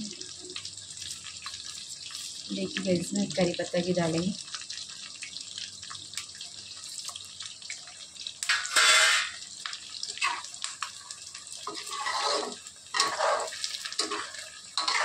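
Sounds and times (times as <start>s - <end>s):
food sizzling in hot oil: 0.0s - 15.0s
metal ladle scraping pan: 8.4s - 9.5s, 10.2s - 10.6s, 11.6s - 15.0s.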